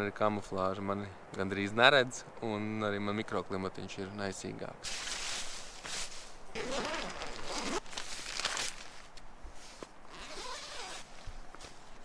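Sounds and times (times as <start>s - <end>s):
nylon fabric rustling: 4.9s - 12.0s
tent zipper rasping: 6.5s - 8.8s, 10.1s - 11.1s.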